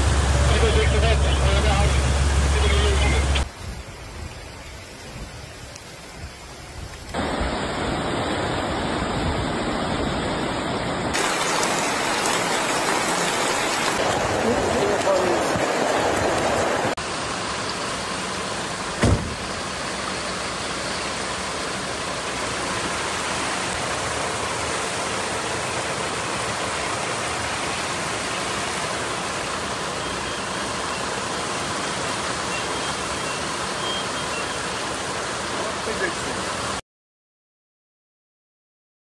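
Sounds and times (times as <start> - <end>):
floodwater rushing through street: 0.0 - 36.8
brief thump: 19.0 - 19.4.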